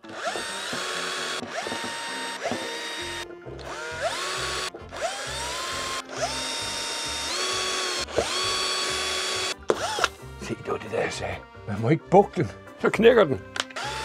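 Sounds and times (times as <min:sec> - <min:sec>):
electric drill motor whining: 0:00.0 - 0:10.4, 0:13.6 - 0:14.0.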